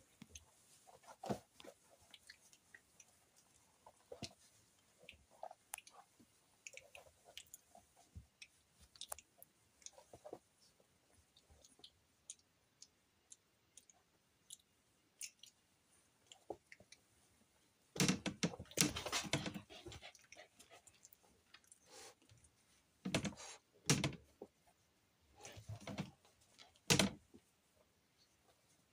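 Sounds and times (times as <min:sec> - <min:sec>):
puppies scuffling on a blanket: 0:00.0 - 0:11.7.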